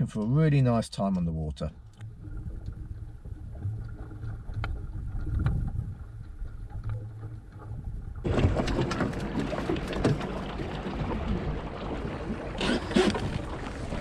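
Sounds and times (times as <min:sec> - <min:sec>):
rush of wind and water: 0:02.0 - 0:14.0
wind on the microphone: 0:02.1 - 0:06.8.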